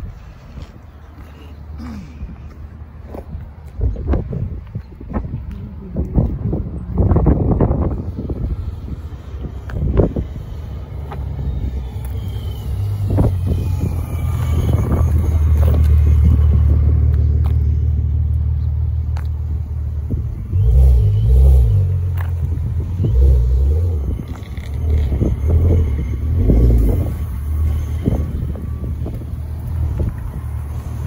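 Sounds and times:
car engines rumbling: 0.0s - 31.0s.

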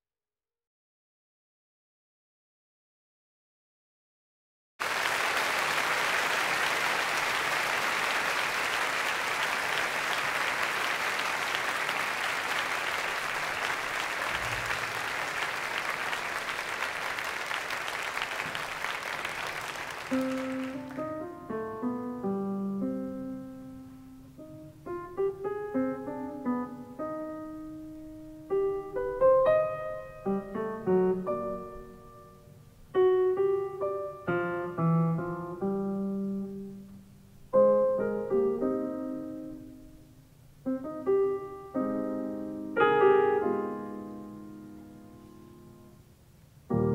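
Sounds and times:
audience applauding: 4.8s - 21.3s
solo piano playing: 20.1s - 46.0s, 46.7s - 46.9s.

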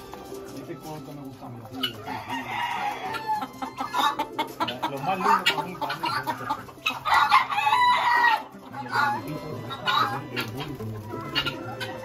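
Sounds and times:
roosters clucking and calling: 0.0s - 12.0s
rooster crowing: 2.1s - 3.5s, 7.1s - 8.4s.

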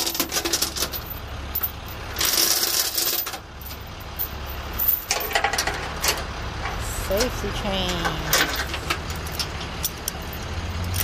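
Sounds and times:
chains clinking and rattling: 0.0s - 5.9s
truck engine idling: 0.0s - 11.0s.

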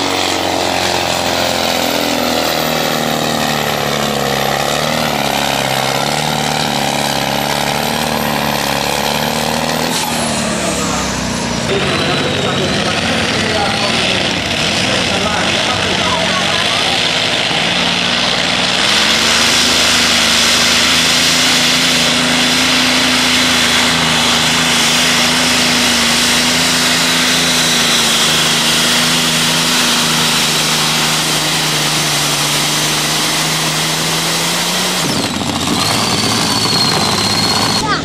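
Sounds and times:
tractor engine at full throttle: 0.0s - 38.0s.

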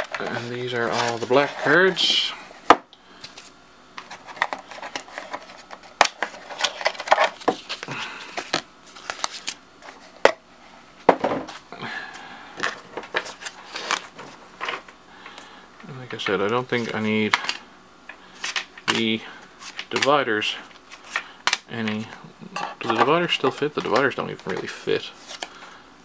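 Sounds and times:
cards rustling and sliding: 0.0s - 2.2s, 3.2s - 10.3s, 12.6s - 15.4s, 16.1s - 17.6s, 18.2s - 22.2s, 22.8s - 25.8s.

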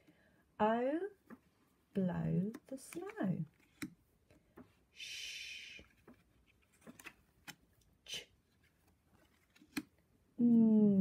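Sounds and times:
flashcards clicking and rustling: 2.3s - 4.7s, 5.8s - 10.0s
person making a shh hiss: 5.0s - 5.9s.

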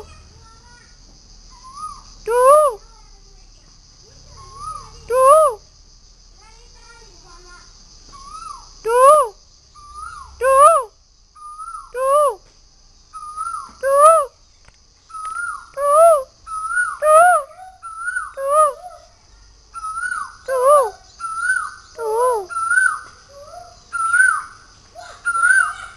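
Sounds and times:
cuckoo calling: 4.3s - 5.6s, 8.1s - 12.4s, 13.2s - 14.3s, 15.1s - 25.9s.

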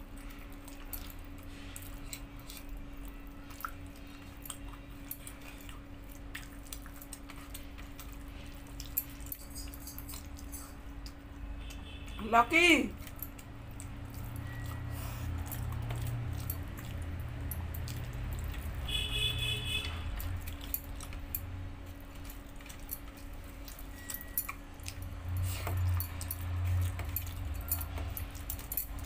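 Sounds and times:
chewing: 0.0s - 12.2s, 12.9s - 29.0s
low steady hum: 0.0s - 29.0s
bangles clinking: 9.0s - 10.8s, 23.8s - 29.0s.

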